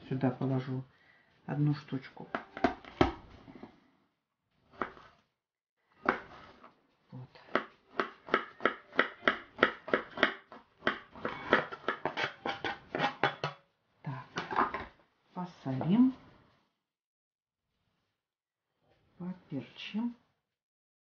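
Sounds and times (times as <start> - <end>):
knife chopping on plastic board: 6.0 - 6.5, 7.5 - 13.5.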